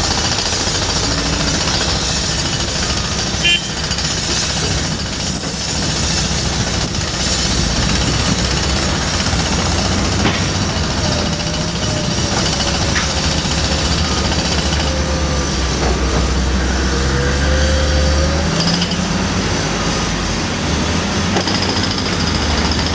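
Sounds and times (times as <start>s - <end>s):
heavy diesel engines running: 0.0s - 22.9s.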